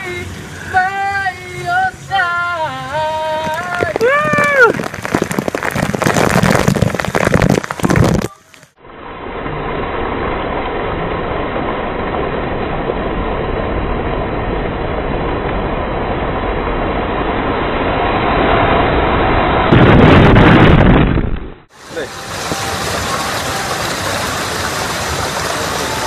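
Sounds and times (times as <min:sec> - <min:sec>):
water pouring and splashing: 0:03.3 - 0:08.8, 0:19.7 - 0:26.0.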